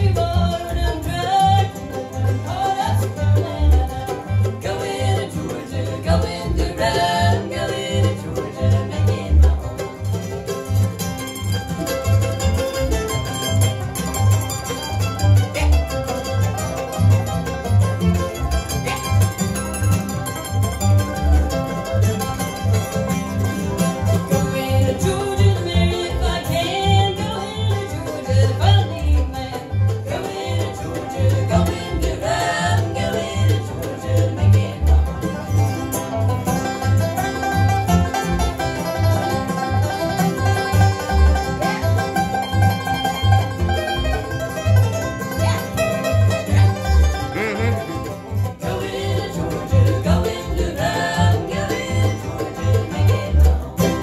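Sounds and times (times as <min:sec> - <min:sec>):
voices singing in harmony: 0:00.0 - 0:10.0, 0:24.4 - 0:35.5, 0:48.5 - 0:54.0
bluegrass band playing: 0:00.0 - 0:54.0.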